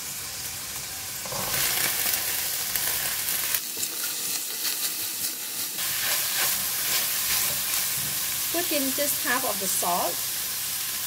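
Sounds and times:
vegetables sizzling in hot oil: 0.0s - 11.0s
spatula scraping a pan: 3.8s - 8.2s.

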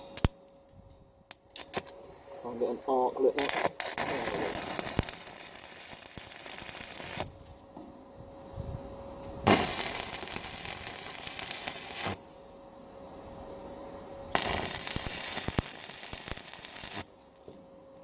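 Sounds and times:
arc welding crackling: 3.2s - 7.4s, 9.4s - 12.2s, 14.3s - 17.1s.

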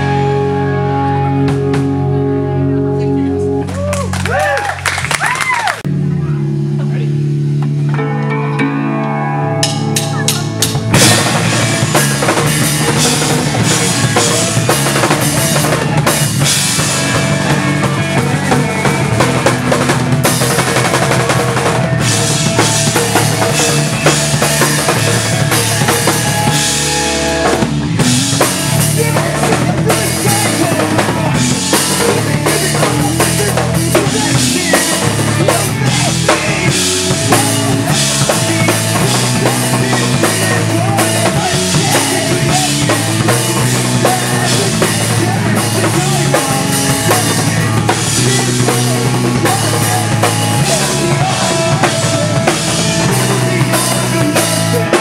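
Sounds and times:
drum kit: 0.0s - 55.0s
rock band playing live: 0.0s - 55.0s.

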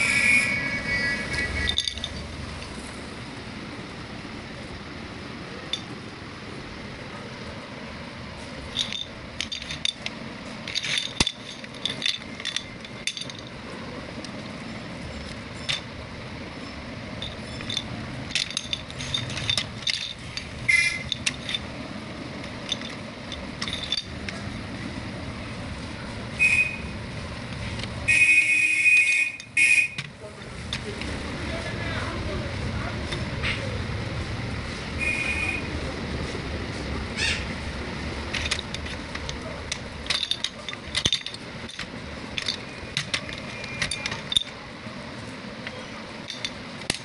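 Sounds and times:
toy electronic tooting tone: 0.0s - 1.8s.

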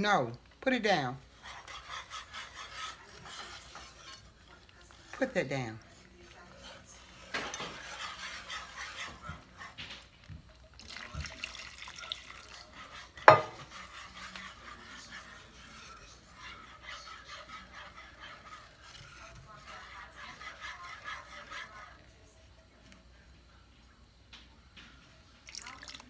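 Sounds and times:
whisk scraping in metal pan: 0.0s - 23.2s
liquid pouring into pan: 7.3s - 14.9s, 25.4s - 26.0s.

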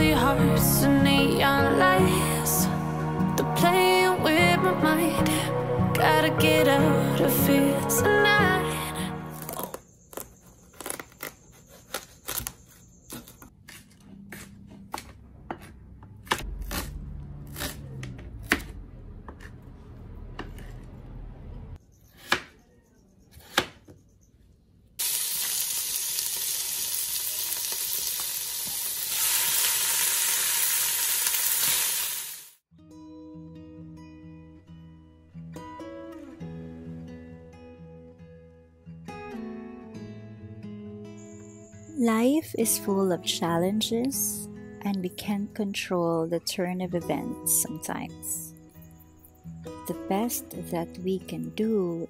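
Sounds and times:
knife chopping on cutting board: 13.1s - 19.6s, 22.1s - 22.6s, 23.3s - 24.0s
food sizzling in oil: 25.0s - 32.6s.

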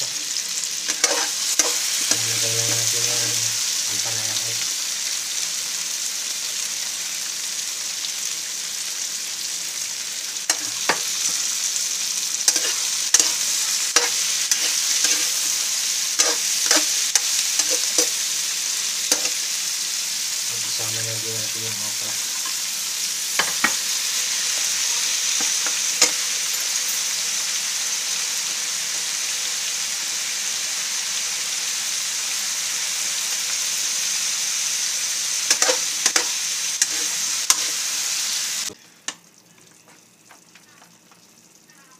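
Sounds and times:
vegetables sizzling in hot oil: 0.0s - 41.9s
metal ladle scraping a pan: 0.9s - 2.2s, 12.5s - 15.6s, 16.2s - 18.2s.

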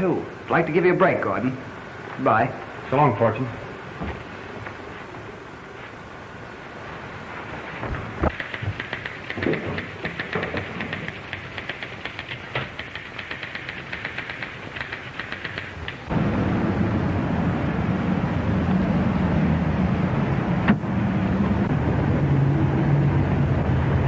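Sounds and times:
typewriter keys clattering: 8.3s - 16.1s
steady low rumble: 16.1s - 23.7s.

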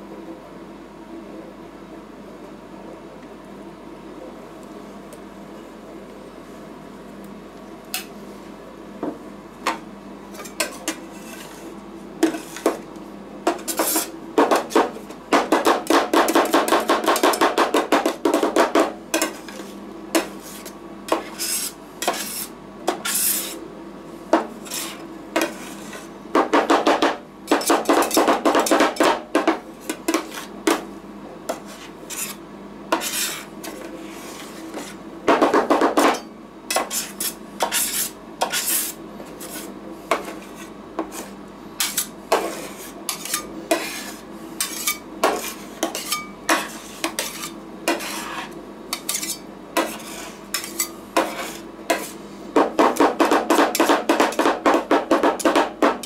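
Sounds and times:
spatulas scraping ice cream: 10.3s - 12.8s, 13.6s - 14.9s, 19.2s - 23.6s, 24.5s - 26.2s, 29.8s - 30.8s, 31.5s - 35.0s, 36.7s - 52.3s.

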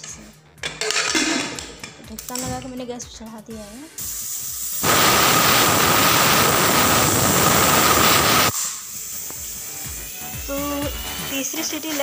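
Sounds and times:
pressure cooker whistling: 4.8s - 11.8s.

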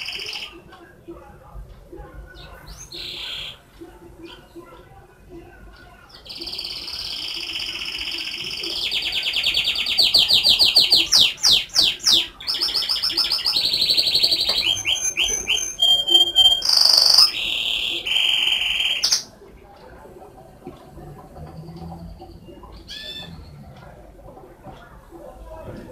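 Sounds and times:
canary singing trills: 0.0s - 0.7s, 2.3s - 4.8s, 5.8s - 19.4s, 21.3s - 24.1s.

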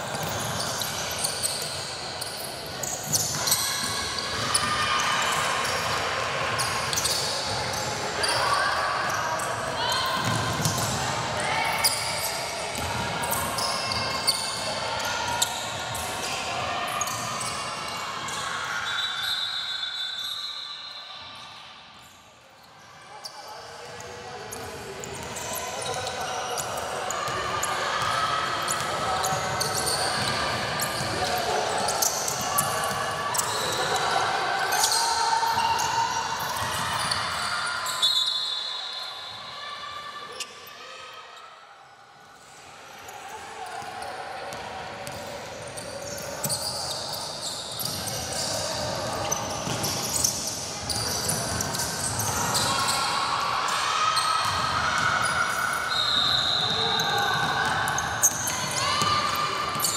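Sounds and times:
chatter of players and spectators: 0.0s - 59.9s
shoe squeaks: 0.1s - 4.8s, 6.9s - 7.5s, 18.8s - 21.2s, 36.5s - 39.4s, 45.0s - 53.0s, 55.3s - 59.9s
basketball bouncing on court: 10.1s - 11.0s, 12.8s - 13.5s, 49.6s - 52.3s, 54.4s - 55.2s.

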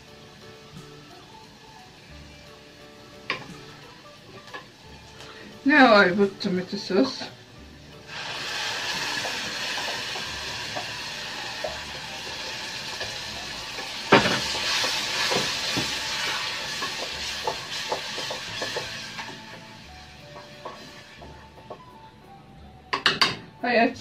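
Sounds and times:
sauce sizzling in a pan: 0.0s - 22.0s
wooden spoon knocking on pan: 12.9s - 19.4s, 20.3s - 21.9s.

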